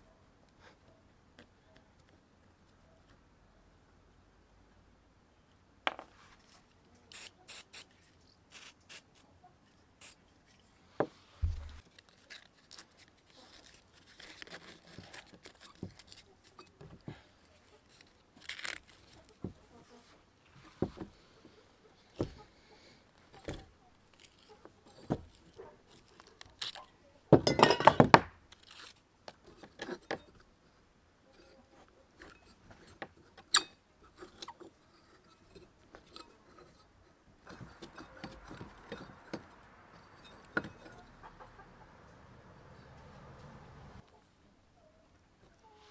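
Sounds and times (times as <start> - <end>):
metal clicks and scrapes: 32.2 - 41.1.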